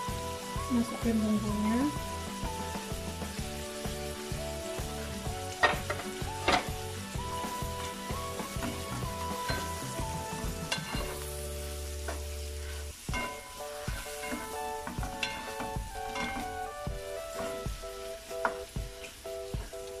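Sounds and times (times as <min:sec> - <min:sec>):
chicken sizzling in butter: 0:00.0 - 0:20.0.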